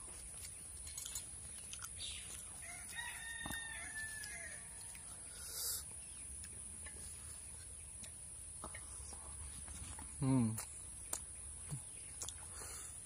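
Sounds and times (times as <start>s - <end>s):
faint rooster crowing: 2.6s - 5.4s.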